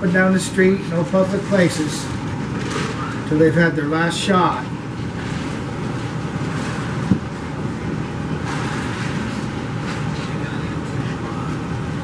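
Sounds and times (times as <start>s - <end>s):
rushing background noise: 4.3s - 12.0s.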